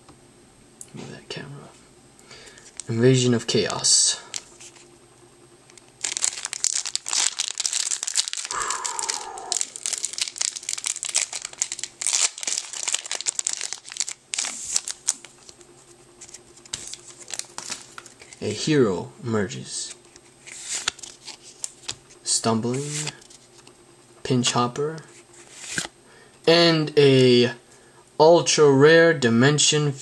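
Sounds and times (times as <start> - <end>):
foil wrapper crinkling and tearing: 5.8 - 18.4, 20.4 - 22.0.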